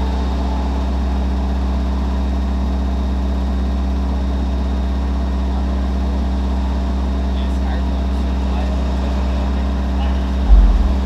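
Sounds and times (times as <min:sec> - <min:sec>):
subwoofer deep bass tone: 0:10.3 - 0:11.0.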